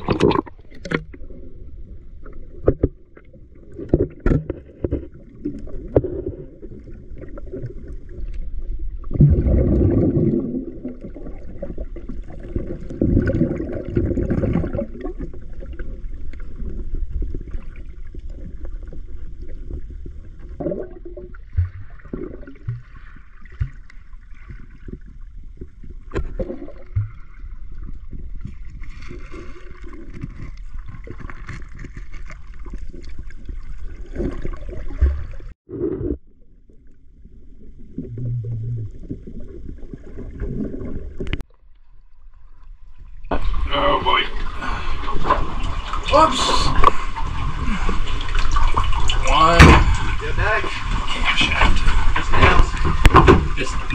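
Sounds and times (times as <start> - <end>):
underwater knocks and clicks: 0.0 - 1.3, 2.2 - 29.2, 29.8 - 37.0, 37.9 - 41.9, 50.8 - 53.9
water gurgling: 0.0 - 41.5, 42.8 - 53.9
underwater rumble of moving water: 0.0 - 53.9.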